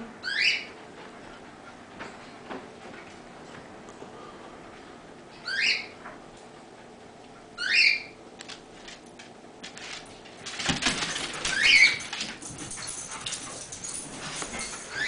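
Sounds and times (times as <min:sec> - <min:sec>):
cockatiel whistled call: 0:05.4 - 0:05.9.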